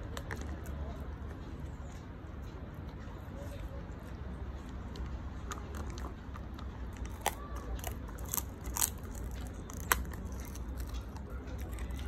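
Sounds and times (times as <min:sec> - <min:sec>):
puppy crunching bone: 0:04.9 - 0:12.0.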